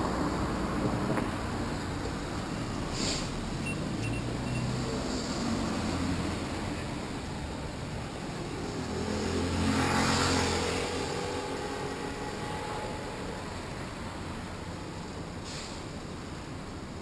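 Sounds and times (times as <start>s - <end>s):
car passing close by: 2.9s - 6.8s, 8.4s - 14.1s.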